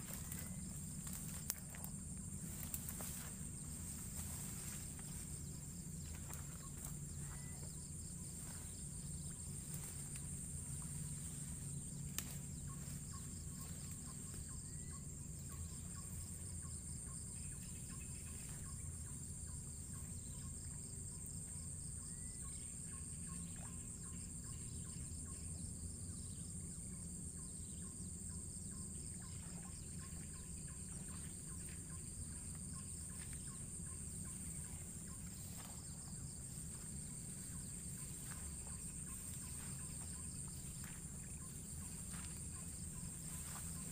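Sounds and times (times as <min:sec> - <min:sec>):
high-pitched insect chorus: 0:00.0 - 0:43.9.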